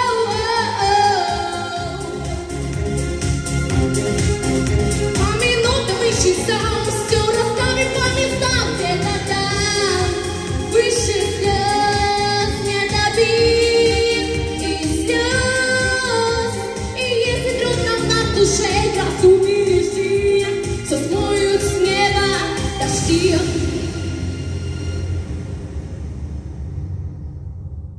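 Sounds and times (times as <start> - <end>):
woman singing pop song: 0.0 - 2.8, 5.1 - 24.4
backing music with beat: 0.0 - 26.2.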